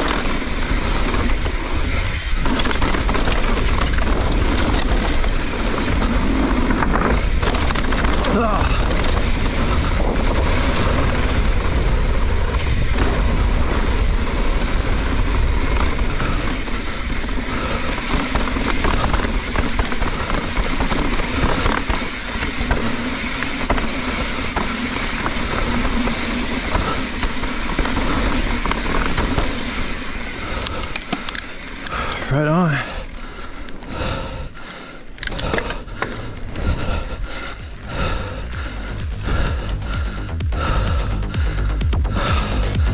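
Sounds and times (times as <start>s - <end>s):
wind rush on microphone: 0.0s - 29.5s
bike knocking and rattling: 0.0s - 42.9s
tyres on dirt: 0.0s - 42.9s.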